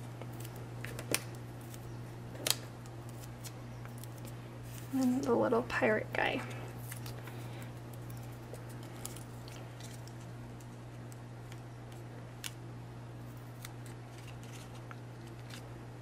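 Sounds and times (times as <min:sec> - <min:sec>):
paper rustling and clicks: 0:13.6 - 0:15.6.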